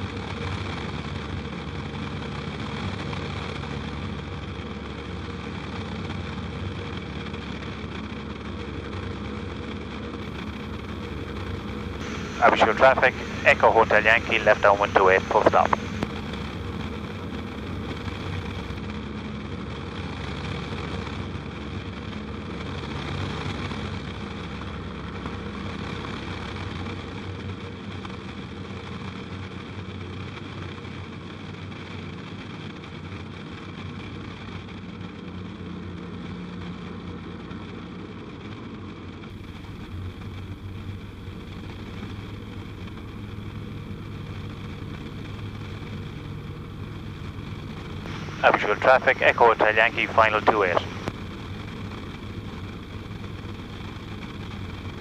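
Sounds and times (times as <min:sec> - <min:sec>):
light aircraft engine drone: 0:00.0 - 0:55.0.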